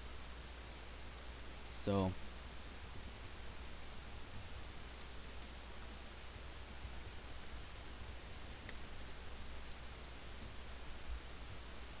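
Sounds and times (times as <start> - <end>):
keyboard typing clicks: 6.9 - 7.9, 8.5 - 10.5.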